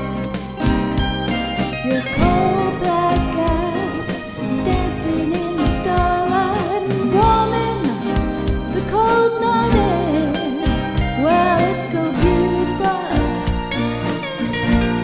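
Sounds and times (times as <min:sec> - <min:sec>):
instrumental accompaniment: 0:00.0 - 0:15.0
woman singing: 0:01.8 - 0:13.6.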